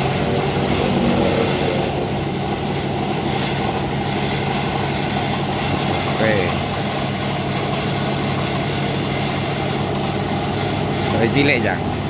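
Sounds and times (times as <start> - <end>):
machine hum: 0.0 - 12.0.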